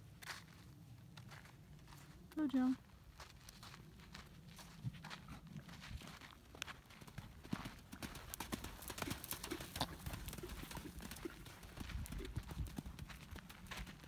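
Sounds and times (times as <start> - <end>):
hoofbeats on sand: 3.1 - 14.0.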